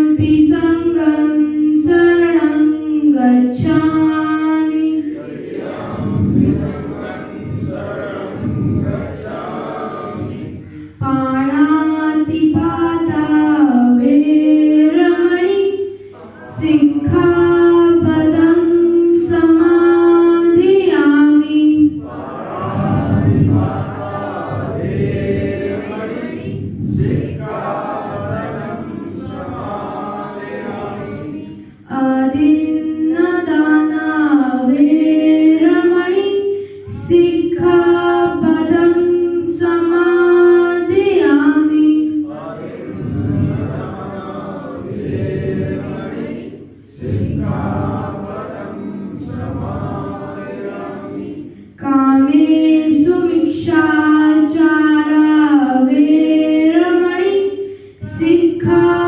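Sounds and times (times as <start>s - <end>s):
voices chanting: 4.9s - 10.8s, 21.8s - 31.6s, 42.2s - 51.6s.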